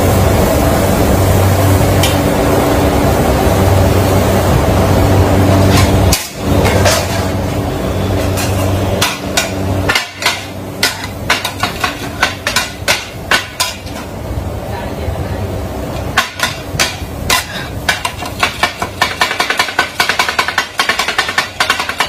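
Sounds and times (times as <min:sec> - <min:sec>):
steady machine hum: 0:00.0 - 0:22.0
metal blades clanging on griddle: 0:05.6 - 0:07.4, 0:08.2 - 0:14.1, 0:16.1 - 0:22.0.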